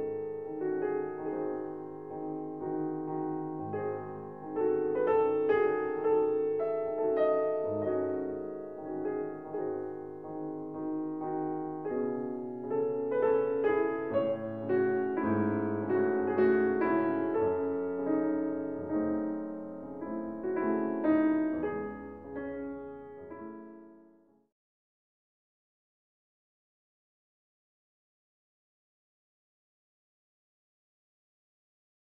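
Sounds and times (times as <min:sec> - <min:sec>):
slow piano music: 0:00.0 - 0:24.5.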